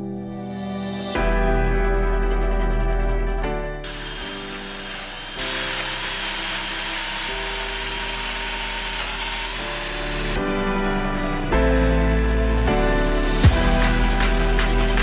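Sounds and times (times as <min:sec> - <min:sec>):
background music: 0:00.0 - 0:15.0
power drill boring into wood: 0:03.8 - 0:10.4.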